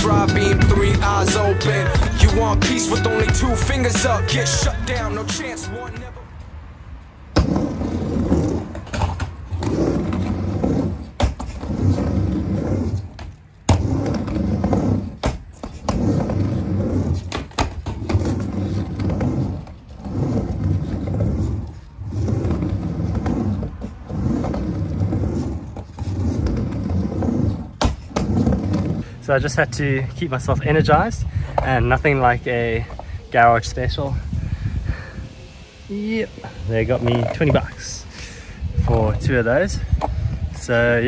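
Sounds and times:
skateboard clacks: 0.0 - 6.1, 7.3 - 29.0
skateboard wheels rolling on ramp: 0.0 - 6.3, 7.1 - 41.0.

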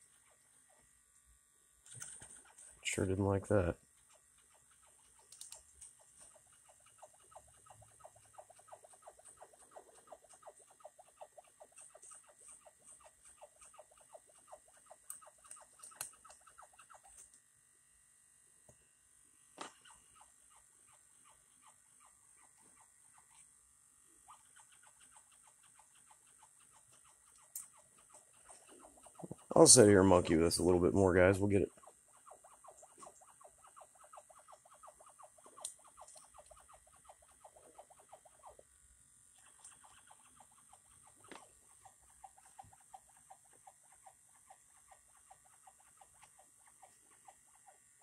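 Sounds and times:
faint steady hiss: 18.4 - 48.0.

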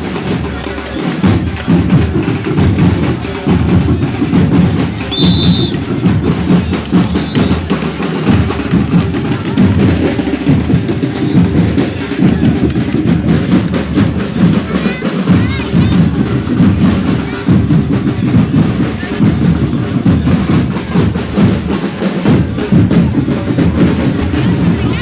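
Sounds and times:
marching band drumming: 0.0 - 25.0
high whistle-like tone: 5.1 - 5.8, 7.0 - 7.7.

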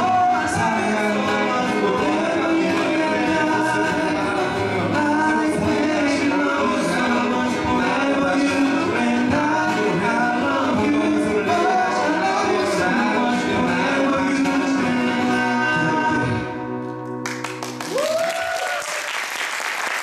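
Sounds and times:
men singing in harmony: 0.0 - 16.6
strummed acoustic guitars: 0.0 - 17.9
audience applause: 17.2 - 20.0
audience whoop: 17.7 - 20.0.

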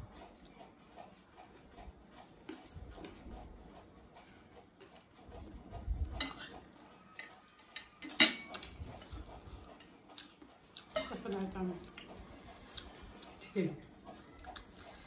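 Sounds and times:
cutlery clinking on glass plates: 7.2 - 8.7.

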